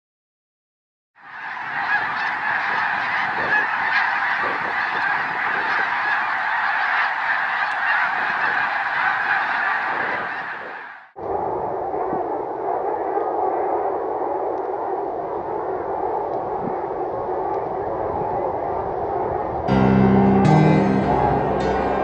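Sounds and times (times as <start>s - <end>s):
flock of geese honking: 1.2s - 11.1s, 19.7s - 22.0s.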